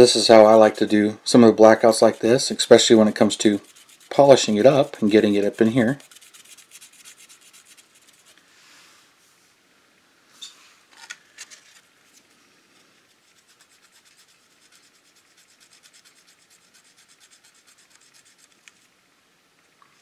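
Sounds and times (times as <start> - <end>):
cotton swab rubbing plastic: 1.8 - 8.4, 13.1 - 18.9.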